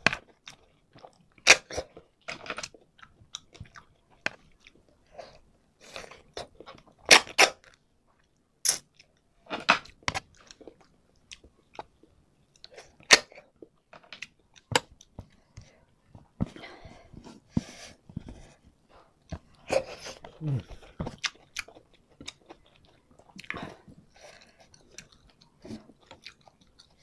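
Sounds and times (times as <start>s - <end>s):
chewing: 19.2s - 27.0s.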